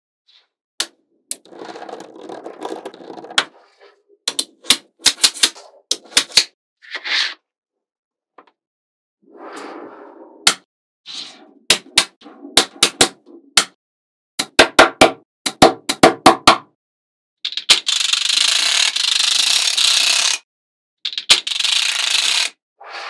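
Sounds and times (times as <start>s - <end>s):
magnetic balls clicking together: 17.5s - 20.4s, 21.1s - 22.5s.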